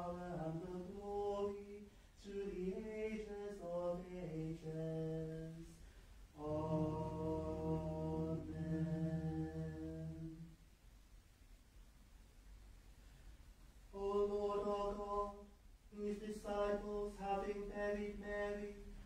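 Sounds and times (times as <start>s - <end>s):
unaccompanied plainchant singing: 0.0s - 5.8s, 6.4s - 10.5s, 13.9s - 19.0s.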